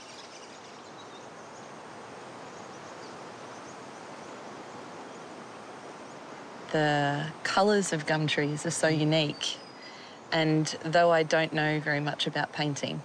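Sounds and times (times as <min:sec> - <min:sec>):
hiss of air through forest: 0:00.0 - 0:10.4.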